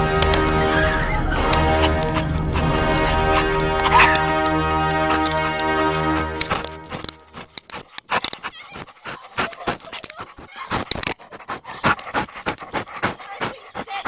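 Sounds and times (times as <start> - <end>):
dog yipping and whining: 3.4 - 4.5.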